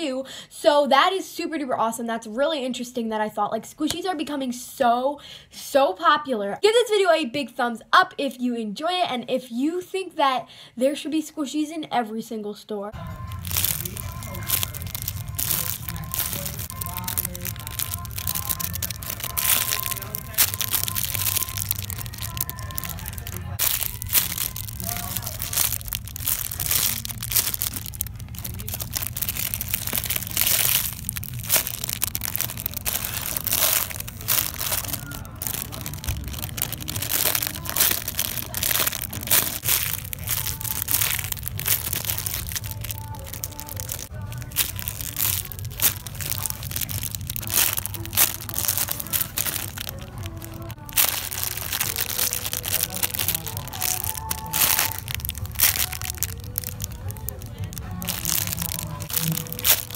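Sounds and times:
plastic bags crinkling: 13.0s - 59.9s.

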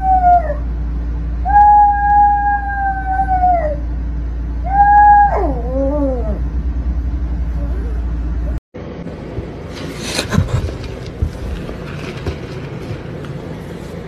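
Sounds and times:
small dog howling: 0.0s - 0.7s, 1.4s - 3.9s, 4.6s - 6.4s
steady low hum: 0.0s - 14.0s.

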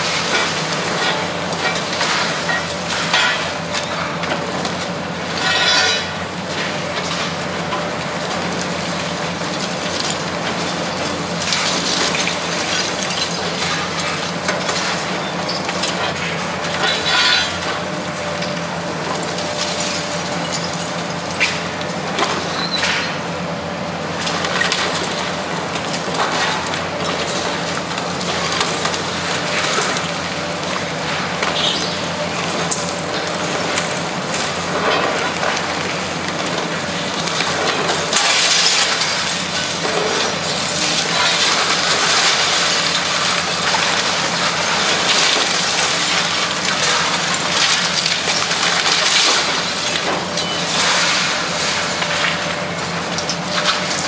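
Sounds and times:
excavator diesel engine drone: 0.0s - 54.0s
concrete crunching and cracking: 24.3s - 54.0s.

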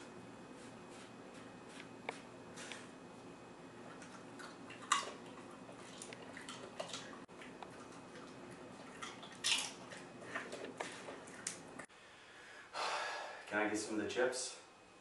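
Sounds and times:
potato chips crunching: 4.4s - 11.6s.

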